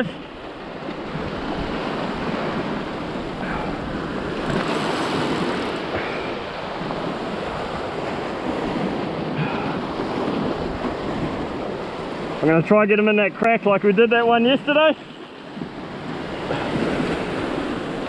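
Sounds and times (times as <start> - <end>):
wind buffeting microphone: 0.4 - 12.5
surf breaking on rocks: 0.8 - 13.3, 13.9 - 18.0.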